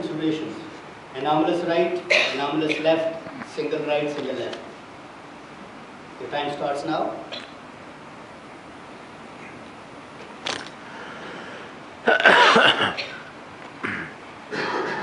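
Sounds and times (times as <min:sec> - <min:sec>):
audience coughing: 0:12.1 - 0:15.0.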